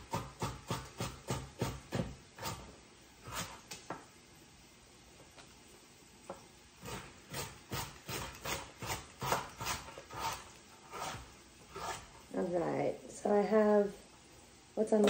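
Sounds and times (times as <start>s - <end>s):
knife chopping on cutting board: 0.0s - 2.7s, 6.8s - 12.0s.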